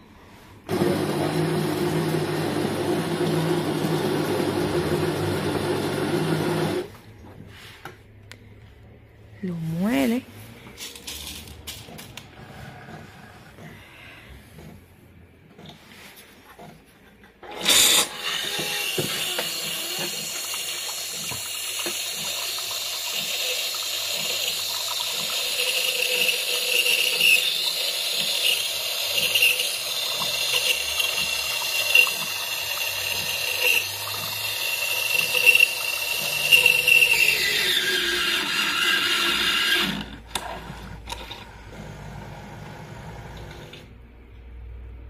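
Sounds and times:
coffee machine pump hissing: 17.6 - 38.4
hot liquid pouring into cup: 18.4 - 37.5.

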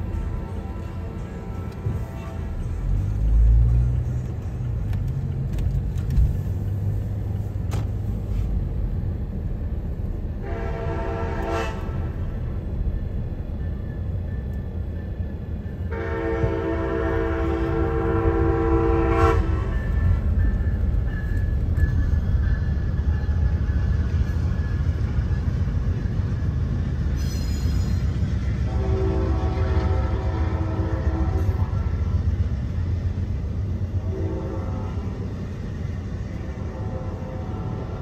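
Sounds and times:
locomotive horn blasts: 0.0 - 3.5, 10.4 - 12.5, 15.9 - 20.4, 28.6 - 32.2, 34.0 - 35.4, 36.5 - 38.0.

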